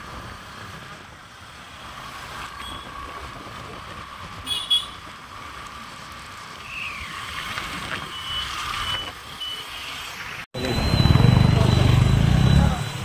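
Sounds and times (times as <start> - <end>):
street traffic hum: 0.0 - 13.0
short high beeps: 10.6 - 13.0.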